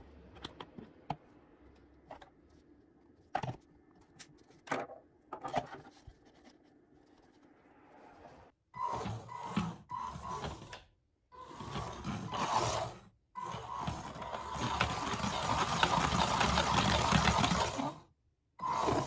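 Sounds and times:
wheels rumbling on wooden floor: 0:08.8 - 0:10.8, 0:11.4 - 0:18.0.

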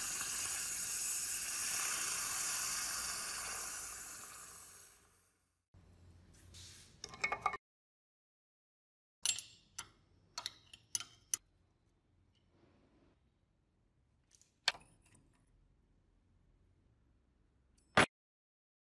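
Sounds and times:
metal clicks of pliers: 0:09.2 - 0:11.4.

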